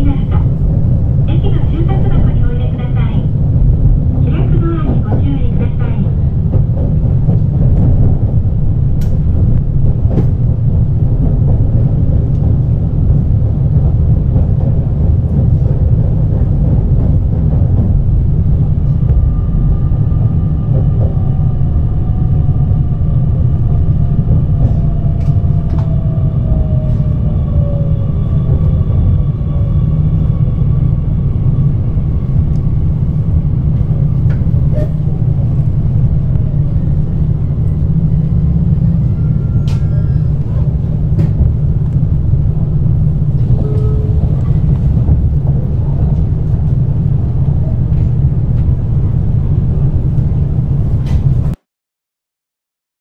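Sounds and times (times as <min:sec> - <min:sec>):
train wheels rumbling on rail: 0:00.0 - 0:51.6
train motor whine: 0:18.3 - 0:33.2.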